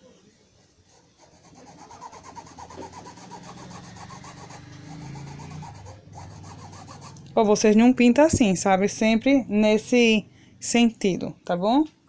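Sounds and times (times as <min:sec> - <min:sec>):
paintbrush scrubbing on cloth: 0:00.7 - 0:07.2.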